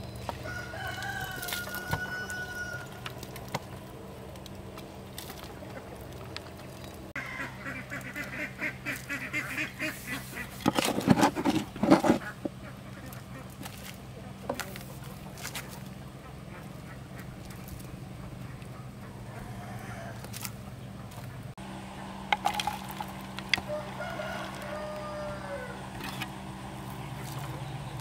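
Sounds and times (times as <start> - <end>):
rooster crowing: 0.3 - 3.1, 7.2 - 7.6, 19.3 - 20.4, 23.6 - 26.1
shovel scraping: 9.4 - 12.5.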